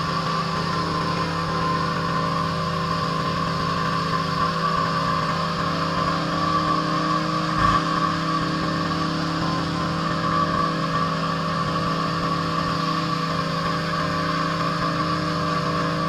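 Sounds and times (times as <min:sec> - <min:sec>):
pressure washer engine droning: 0:00.0 - 0:16.0.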